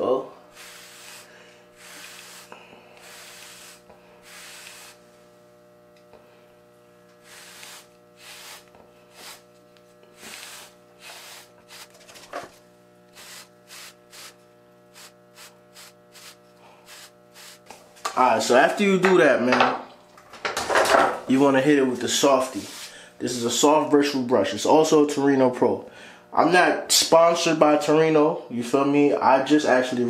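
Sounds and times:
brush swishing through hair: 0.6s - 5.0s, 7.3s - 9.5s, 10.2s - 12.3s, 15.0s - 18.0s, 22.5s - 22.9s.

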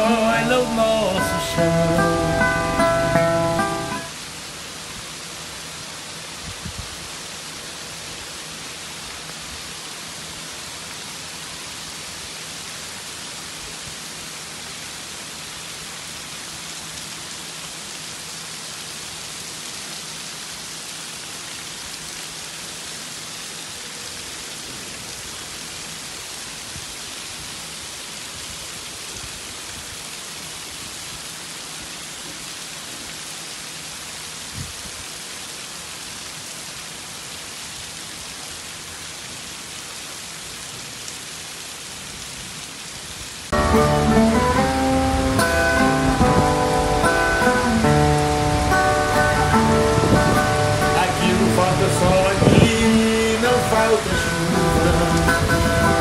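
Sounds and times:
heavy rain on roofs: 0.0s - 56.0s.

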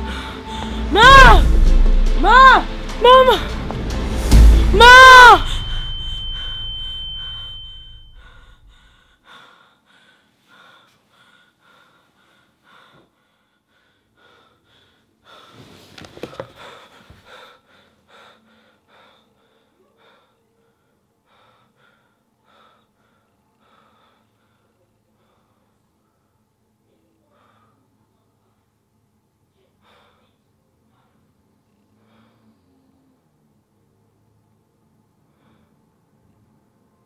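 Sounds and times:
woman gasping and breathing hard: 0.0s - 1.4s
low rumble: 0.7s - 4.8s
high steady tone: 0.9s - 8.8s
bedding rustling: 15.4s - 17.3s.

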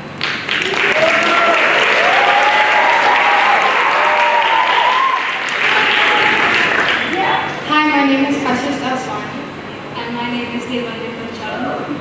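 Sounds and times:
audience clapping loudly: 0.2s - 7.4s
voices cheering and calling out: 0.7s - 7.6s.

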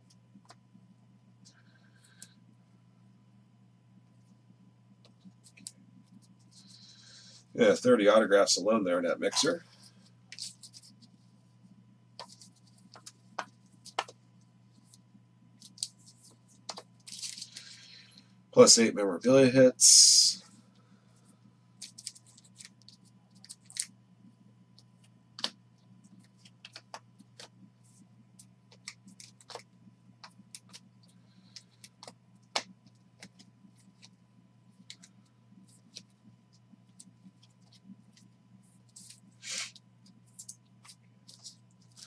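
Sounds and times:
steady low hum: 0.0s - 42.0s
cards and plastic sleeves handled: 5.0s - 7.1s, 9.2s - 11.4s, 12.1s - 17.8s, 21.8s - 23.9s, 24.8s - 42.0s.

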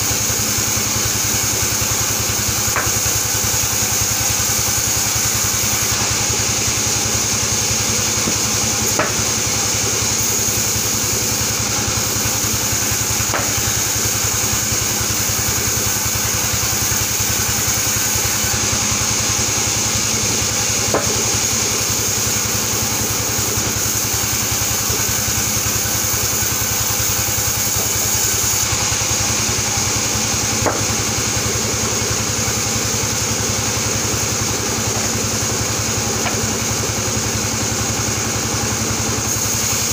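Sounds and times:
sawmill machine drone and whine: 0.0s - 39.9s
sharp knocks: 30.6s - 30.9s.

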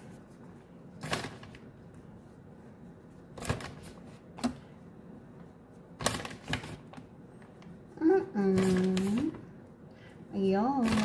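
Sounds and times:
plastic bag crinkling: 6.0s - 7.0s.

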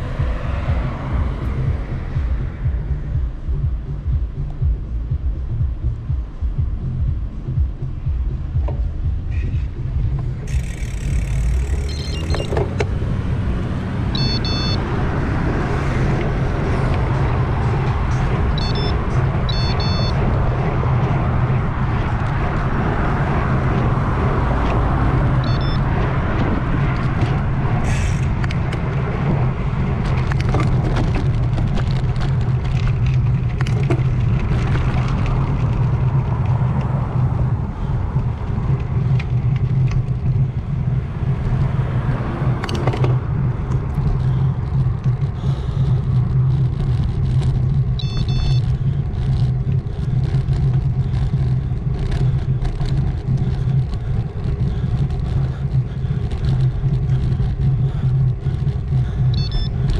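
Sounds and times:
bike road rumble: 0.0s - 59.9s
wind rush on microphone: 0.0s - 59.9s
small clicks and rattles: 10.5s - 12.9s, 30.0s - 36.9s, 42.6s - 59.9s.

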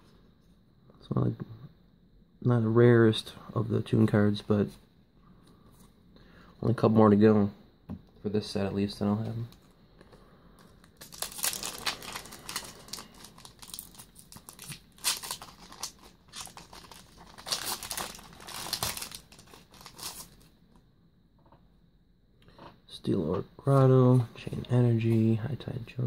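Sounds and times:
foil wrapper crinkling and tearing: 10.9s - 20.4s.

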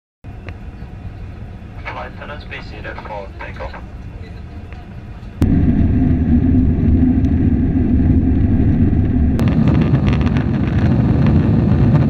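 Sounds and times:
jet engines rumbling in cabin: 0.3s - 12.0s
hissing cabin noise: 5.4s - 10.4s.

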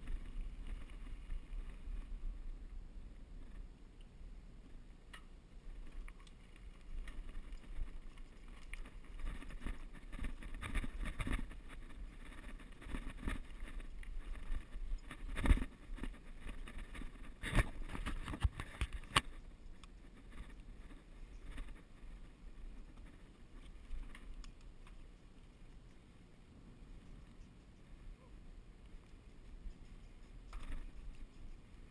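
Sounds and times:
bike tyres on dirt trail: 0.0s - 3.8s, 4.5s - 25.6s.

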